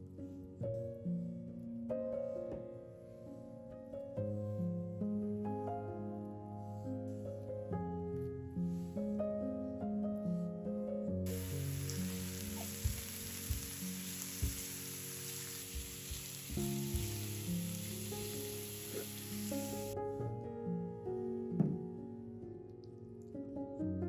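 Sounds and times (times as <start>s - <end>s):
piano music: 0.0s - 24.0s
garlic sizzling in oil: 11.3s - 20.0s
spatula knocking on pan: 12.1s - 14.8s.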